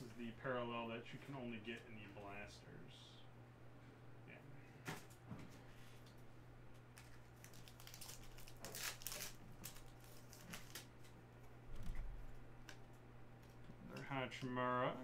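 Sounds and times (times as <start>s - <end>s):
steady low hum: 0.0s - 15.0s
foil wrappers crinkling and tearing: 6.9s - 11.1s.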